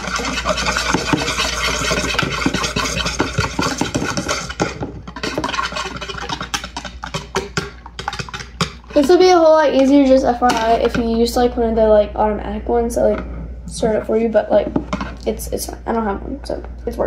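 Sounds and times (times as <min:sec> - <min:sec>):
whisk rattling in plastic bowl: 0:00.0 - 0:11.2.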